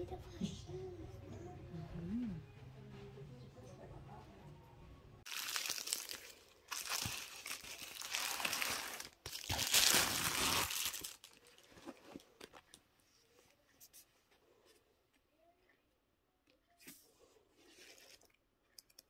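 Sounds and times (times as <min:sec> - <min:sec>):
plastic mailer crinkling and tearing: 0:05.3 - 0:11.8.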